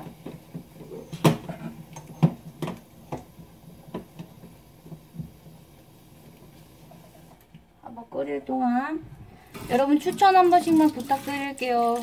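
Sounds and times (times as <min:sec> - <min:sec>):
clicks and knocks at stove: 0:00.0 - 0:03.3.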